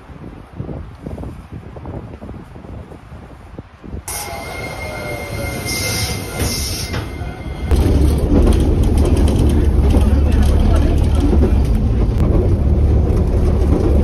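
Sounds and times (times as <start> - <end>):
low rumble of train car: 0.0 - 14.0
train wheels squealing on rails: 4.1 - 8.3.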